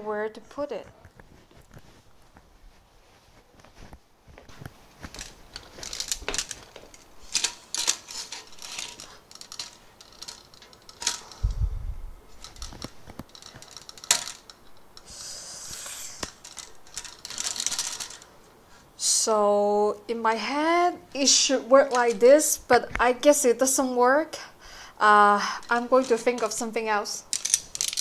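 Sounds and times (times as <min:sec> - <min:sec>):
metal parts clicking and rattling: 0:05.0 - 0:11.6, 0:12.3 - 0:15.1, 0:16.2 - 0:18.4, 0:21.2 - 0:22.4, 0:25.6 - 0:28.0.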